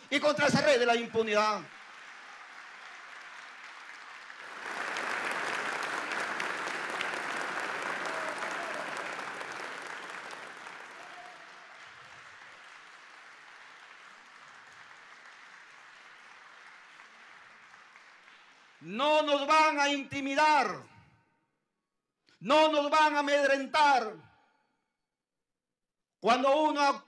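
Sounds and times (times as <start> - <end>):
audience applauding: 0.4 - 18.9.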